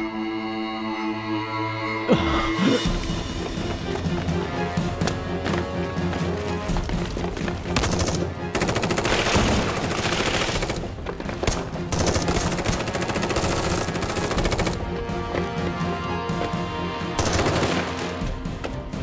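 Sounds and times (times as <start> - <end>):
background music: 0.0 - 19.0
automatic gunfire bursts: 7.8 - 10.8.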